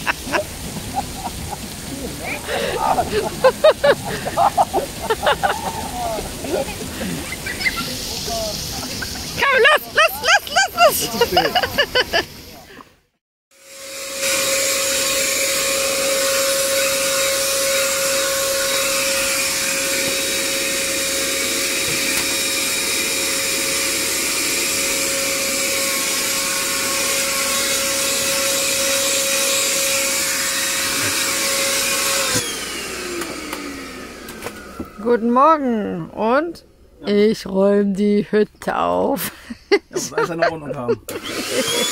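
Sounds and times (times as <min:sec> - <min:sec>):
handheld vacuum cleaner whine: 0:13.5 - 0:35.2, 0:40.4 - 0:41.9
vacuum motor spinning down: 0:13.6 - 0:35.1, 0:41.1 - 0:41.9.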